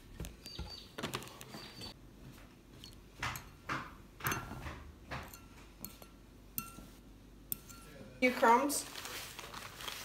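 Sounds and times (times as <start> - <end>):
fork tapping against bowl: 5.2 - 6.9, 7.5 - 8.0
fork beating eggs in a bowl: 7.5 - 8.0.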